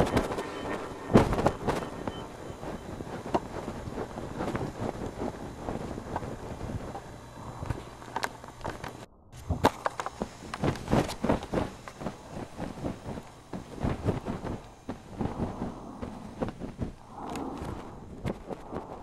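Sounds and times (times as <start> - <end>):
soft rustling: 10.0 - 19.0.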